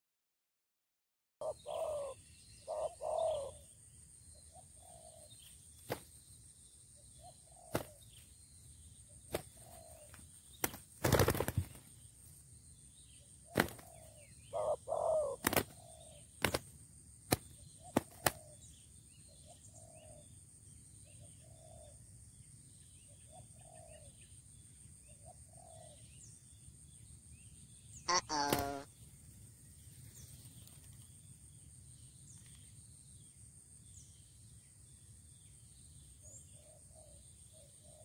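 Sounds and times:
doves cooing: 0:01.4 - 0:03.7, 0:13.5 - 0:16.7, 0:17.3 - 0:18.6, 0:28.1 - 0:28.9
wings flapping: 0:05.8 - 0:06.1, 0:07.7 - 0:08.0, 0:09.3 - 0:11.9, 0:13.5 - 0:14.0, 0:15.4 - 0:15.8, 0:16.4 - 0:16.7, 0:17.3 - 0:18.5, 0:28.2 - 0:28.9.

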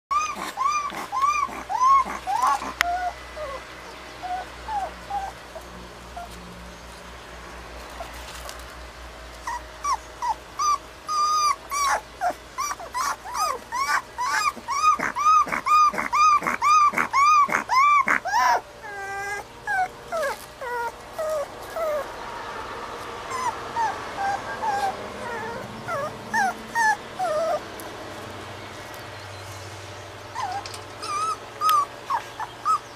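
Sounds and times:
puppy whimpering: 0:00.1 - 0:06.4, 0:09.4 - 0:22.1, 0:23.3 - 0:27.7, 0:30.3 - 0:32.9.

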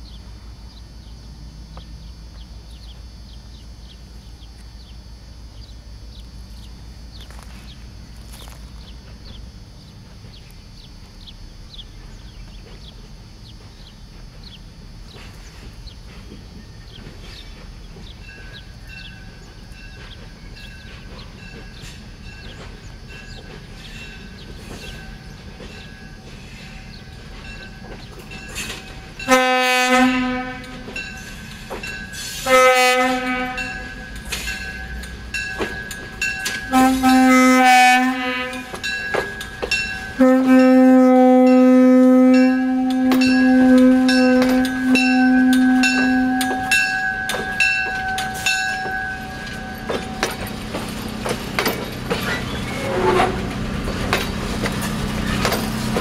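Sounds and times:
train rumbling: 0:00.0 - 0:56.0
faint clicking of train wheels: 0:00.1 - 0:41.6, 0:42.3 - 0:56.0
train horn blasts: 0:29.1 - 0:31.1, 0:32.2 - 0:35.0, 0:36.4 - 0:39.0, 0:40.0 - 0:50.5, 0:52.5 - 0:53.6.

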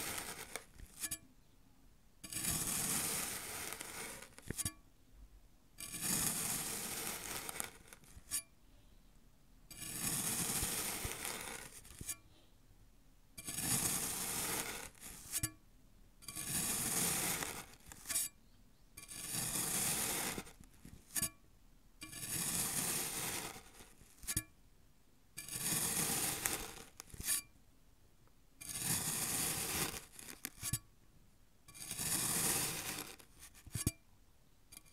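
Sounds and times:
knife slicing through sand: 0:00.0 - 0:00.7, 0:02.3 - 0:04.6, 0:05.8 - 0:08.4, 0:09.8 - 0:12.2, 0:13.4 - 0:15.4, 0:16.3 - 0:18.2, 0:19.0 - 0:21.2, 0:22.1 - 0:24.4, 0:25.4 - 0:27.4, 0:28.6 - 0:30.7, 0:31.8 - 0:33.9.

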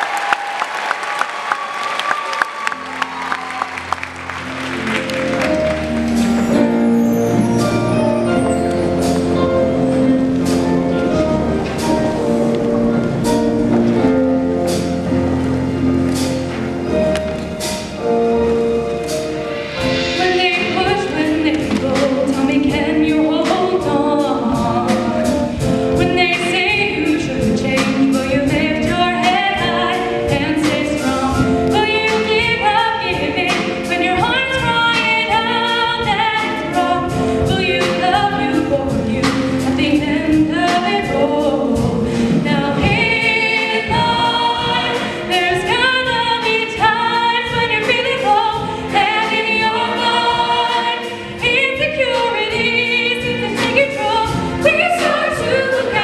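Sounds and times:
mixed choir singing: 0:39.2 - 0:56.0.

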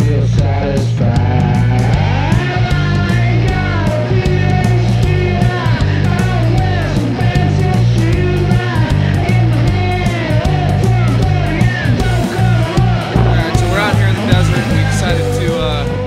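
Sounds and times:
bass guitar: 0:00.0 - 0:16.0
steady drum beat: 0:11.8 - 0:15.9.

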